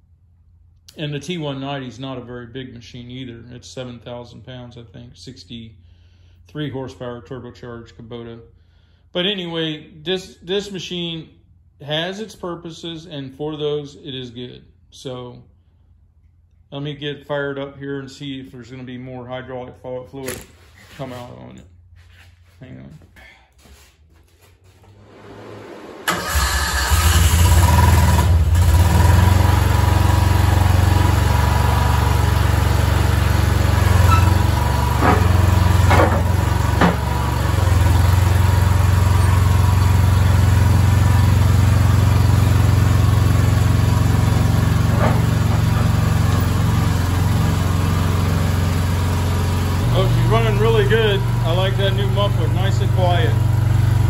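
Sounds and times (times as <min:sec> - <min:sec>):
small gasoline engine starting and running: 0:25.0 - 0:54.0.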